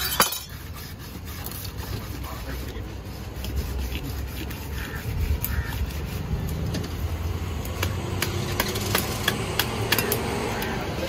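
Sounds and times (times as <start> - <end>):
knife scraping fish scales: 0.0 - 6.7
engine rumbling: 0.0 - 11.0.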